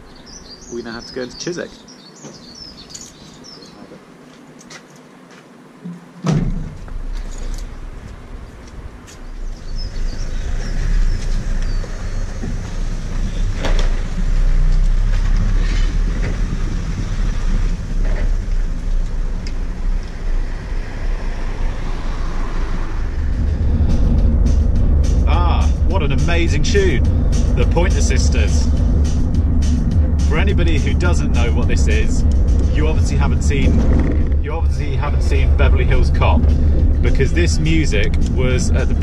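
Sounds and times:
engine and road rumble: 0.0 - 39.0
sharp thump: 5.8 - 7.0.

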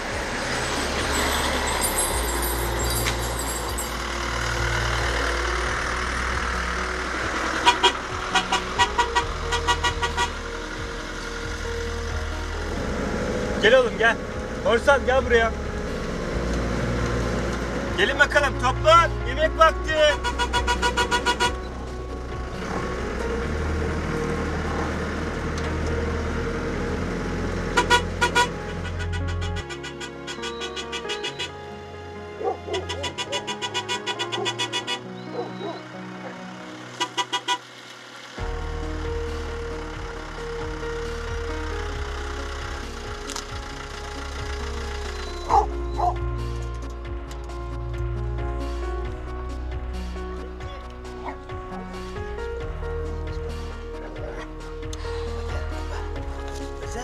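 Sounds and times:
engine running: 0.0 - 57.0
heavy truck rumbling past: 0.0 - 57.0
tyres on dirt track: 0.0 - 57.0
vehicle horn short beeps: 20.2 - 21.6.

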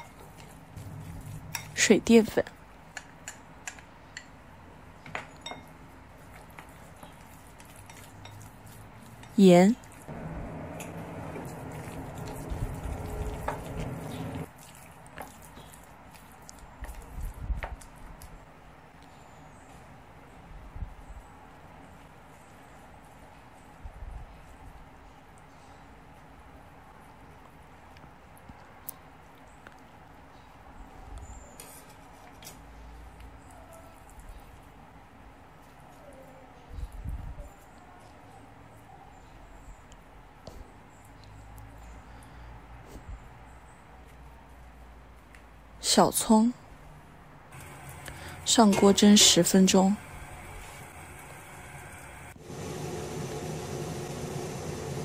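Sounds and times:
chopsticks stirring wet filling: 0.0 - 2.0, 6.2 - 17.3, 47.6 - 55.0
low bumps: 0.7 - 2.1
background hum: 5.6 - 14.6, 46.6 - 55.0.

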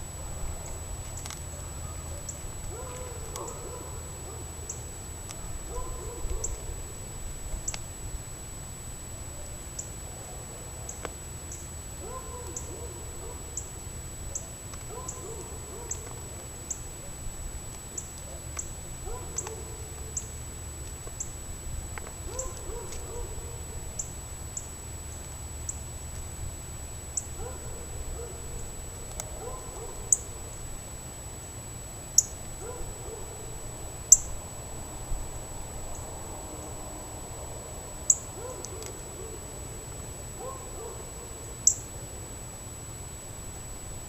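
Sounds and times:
steady high whine: 0.0 - 44.0
small ticks: 0.6 - 8.0, 10.8 - 26.4, 27.1 - 30.6, 32.1 - 34.3, 38.0 - 42.0
owl hooting: 1.5 - 7.1, 9.2 - 17.2, 22.2 - 24.7, 37.5 - 42.1.

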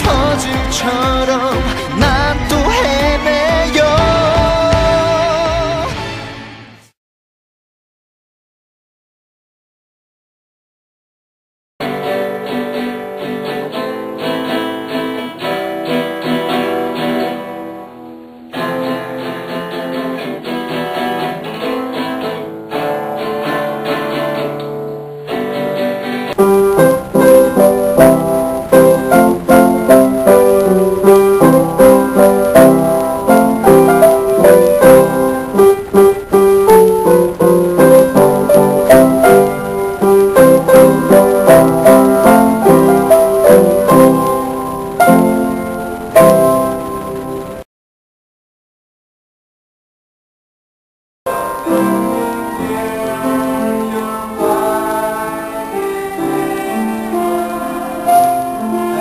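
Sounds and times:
piano played four hands: 12.1 - 47.6, 51.3 - 59.0
dull piano music: 26.3 - 47.6.

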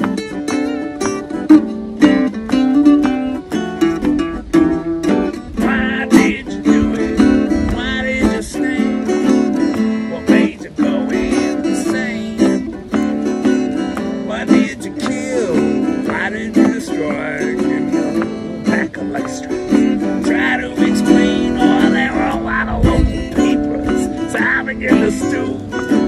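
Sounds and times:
acoustic guitar: 0.0 - 26.0
small plucked string instrument: 0.0 - 26.0.

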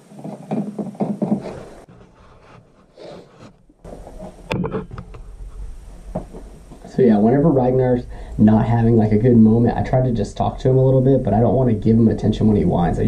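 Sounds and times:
rubbing and scraping handling noise: 0.0 - 7.4.

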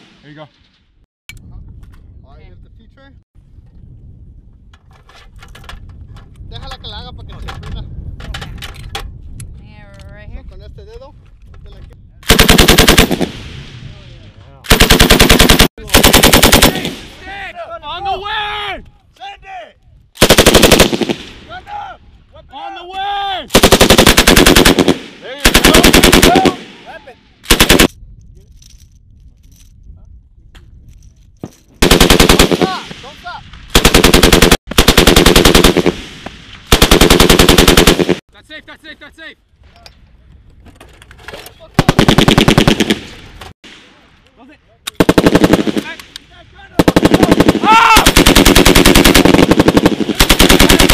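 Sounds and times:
machine gun bursts: 12.3 - 13.3, 14.7 - 16.9, 20.2 - 21.2, 23.5 - 26.5, 27.5 - 27.9, 31.8 - 32.8, 33.7 - 36.0, 36.7 - 38.2, 45.0 - 45.9, 46.8 - 50.9.

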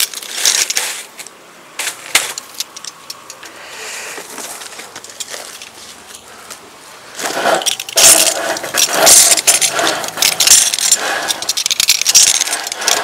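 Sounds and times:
rope rasping: 7.2 - 13.0.

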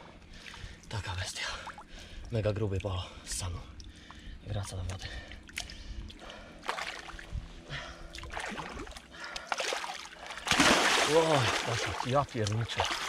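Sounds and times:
river water splashing: 5.5 - 7.3, 8.1 - 13.0.

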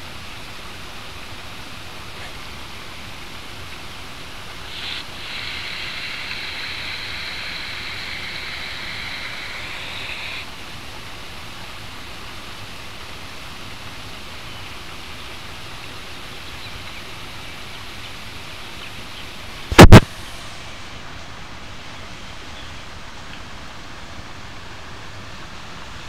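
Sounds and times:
creek water over small waterfall: 0.0 - 26.0
steady high buzz: 2.5 - 10.6.

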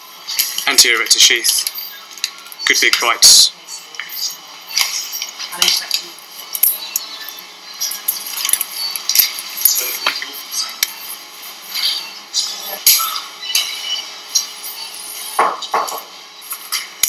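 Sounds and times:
surgical instruments clinking: 8.1 - 9.4.

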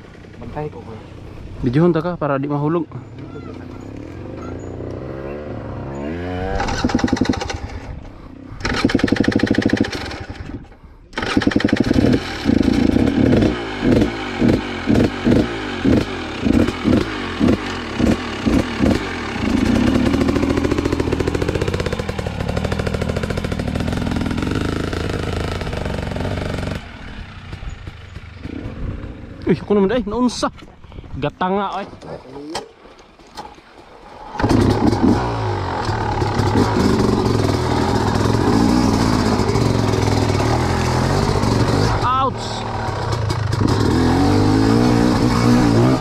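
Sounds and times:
dirt bike engine revving: 2.5 - 29.8, 34.2 - 46.0.

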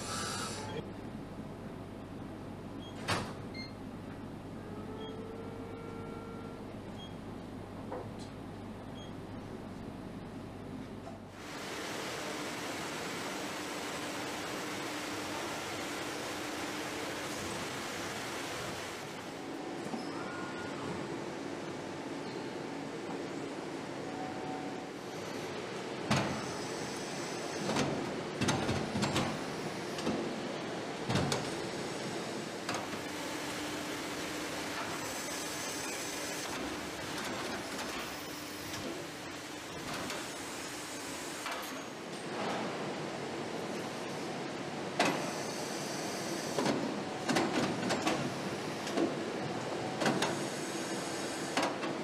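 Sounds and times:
steady factory hum: 0.0 - 52.0
machine humming: 11.4 - 19.7, 32.8 - 41.4.

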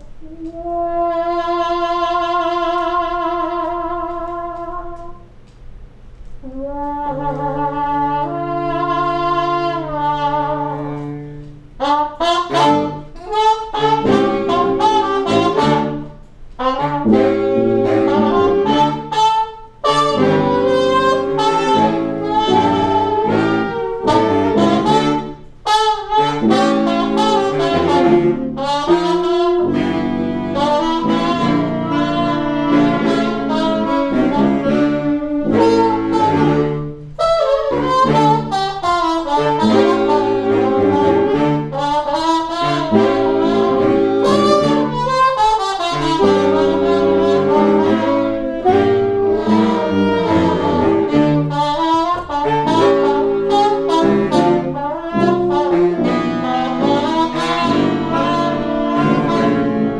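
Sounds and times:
horn band playing: 0.0 - 5.5, 6.2 - 59.9.

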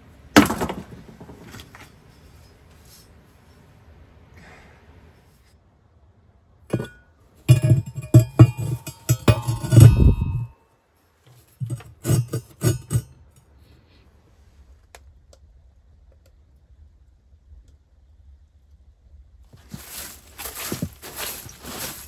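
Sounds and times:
grate scraping: 6.7 - 10.5, 11.3 - 13.2, 19.6 - 22.0
iron grate clanking against brick: 6.7 - 10.6, 11.3 - 13.3.

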